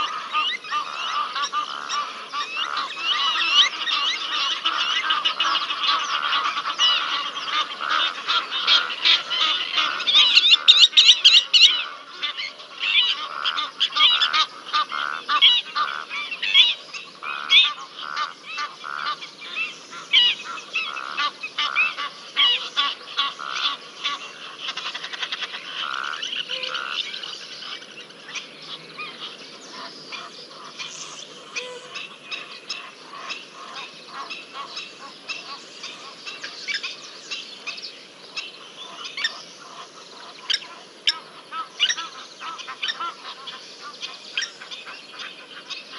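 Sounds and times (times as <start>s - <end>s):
geese honking: 0.0s - 45.9s.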